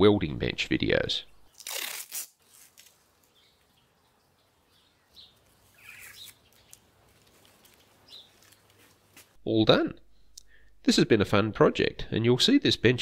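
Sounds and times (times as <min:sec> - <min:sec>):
faint bird chirps: 0:03.3 - 0:06.8.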